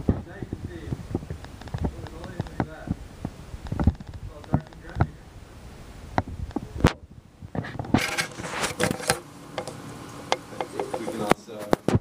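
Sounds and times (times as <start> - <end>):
sharp clicks and taps: 1.3 - 2.7, 3.6 - 5.1.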